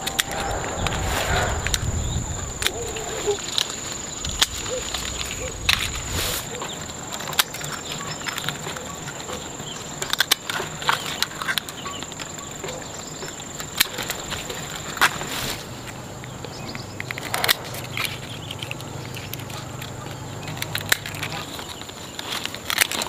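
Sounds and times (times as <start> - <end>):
leafy branches rustling: 0.0 - 8.8, 13.9 - 16.2.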